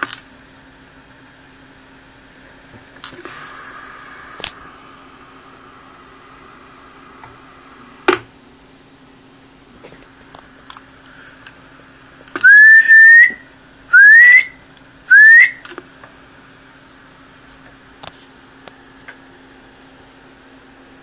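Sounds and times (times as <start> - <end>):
faint steady hum: 0.0 - 21.0
person whistling rising notes: 12.4 - 13.4, 14.0 - 15.6.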